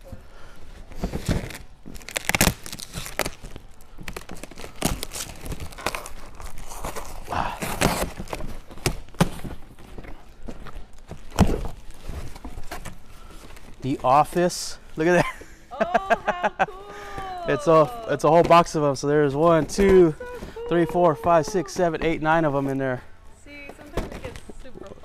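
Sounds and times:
cardboard rustling: 0.8 - 14.6, 16.6 - 25.0
plastic wrap crinkling and tearing: 0.9 - 15.0.

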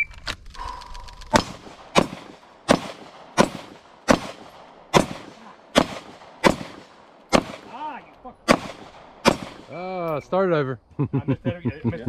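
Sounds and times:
handgun shots with echo: 1.3 - 7.8, 8.5 - 9.7.

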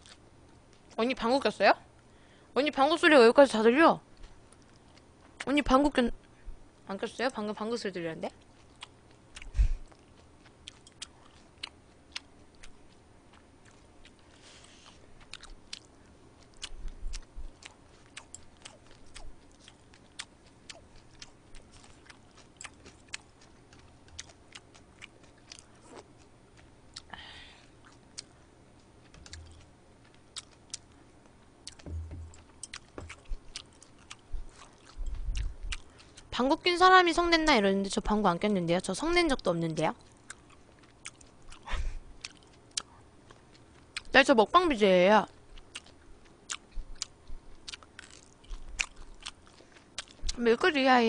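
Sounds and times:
woman chewing: 8.4 - 36.3, 40.0 - 44.1, 45.6 - 50.4
soft low thumps: 29.1 - 29.7, 31.7 - 33.6, 34.3 - 35.8.

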